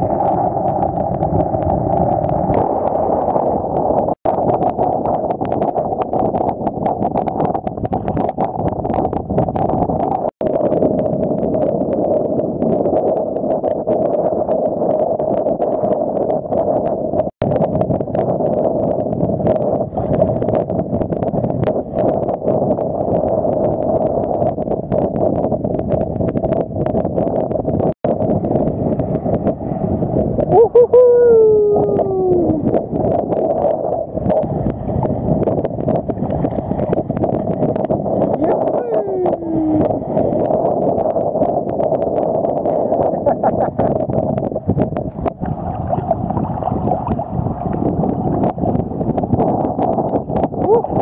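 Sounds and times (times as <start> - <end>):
wind on microphone: 0.0 - 51.0
sea water sloshing: 34.5 - 38.4, 45.0 - 49.1.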